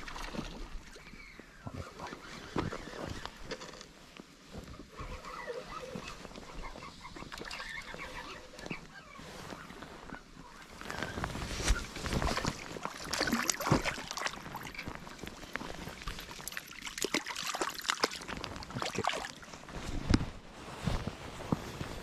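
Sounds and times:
sleeve rubbing against microphone: 4.6s - 12.9s, 19.4s - 22.0s.

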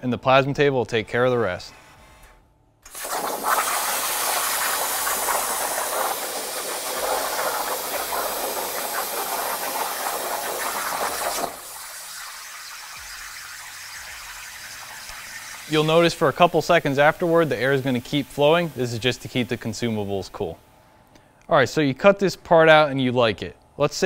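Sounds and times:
air hiss: 2.8s - 20.8s
plasma cutter arc hissing: 2.9s - 20.7s.

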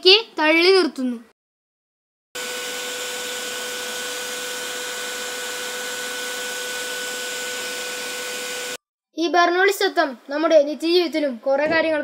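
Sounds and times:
electric air blower running: 2.4s - 8.8s.

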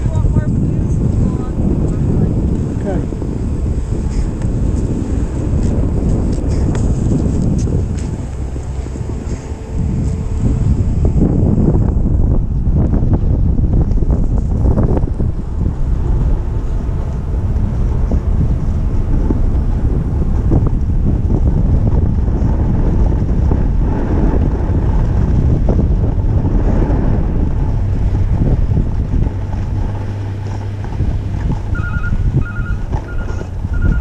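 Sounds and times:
wind buffeting microphone: 0.0s - 34.0s
reversing beeper beeps: 31.8s - 34.0s.

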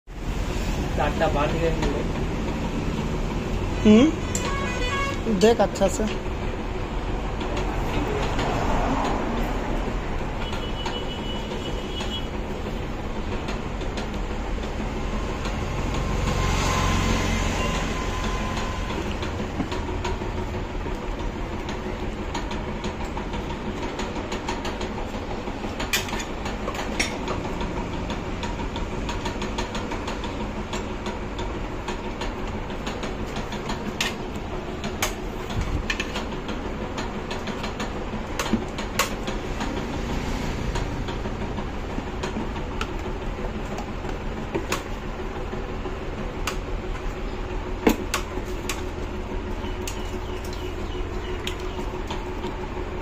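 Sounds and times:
mechanical running hum: 0.1s - 53.0s
sharp clicks and knocks: 18.0s - 45.0s, 46.2s - 47.2s, 47.8s - 53.0s.

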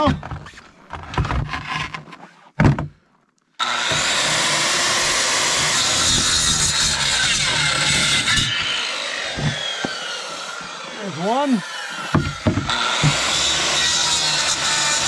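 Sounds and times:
thump: 2.6s - 3.0s, 12.1s - 13.2s
circular saw cutting bone: 3.6s - 15.0s
handling knocks: 12.0s - 13.2s.

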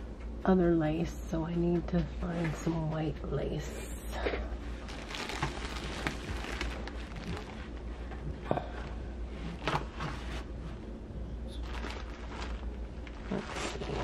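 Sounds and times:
rustling of craft supplies: 4.7s - 8.2s, 11.5s - 14.0s.

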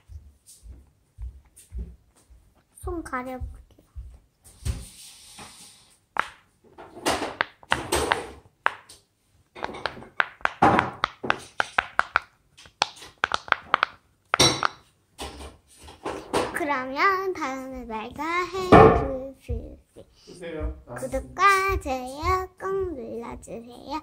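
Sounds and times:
fidget toy bubbles popping: 9.6s - 14.8s.

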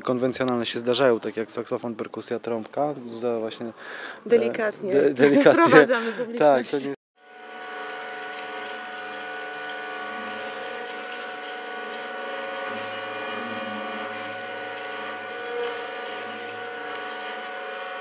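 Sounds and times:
bowed guitar drone: 7.3s - 18.0s.

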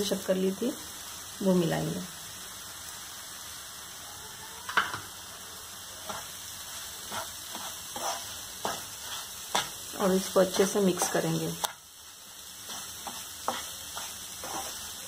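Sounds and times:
food sizzling in a pan: 0.0s - 15.0s
wooden spatula scraping pan: 7.0s - 11.3s, 12.6s - 15.0s.

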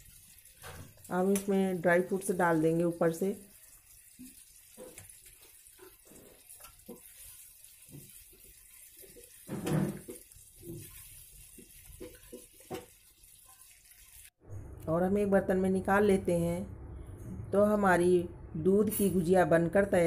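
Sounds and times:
spatula stirring thick liquid: 2.3s - 14.4s.

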